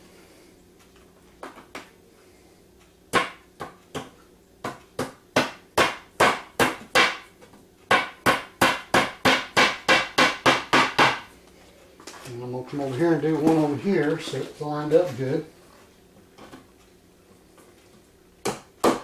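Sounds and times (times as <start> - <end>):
hammer tapping fasteners into wood: 7.9 - 11.3.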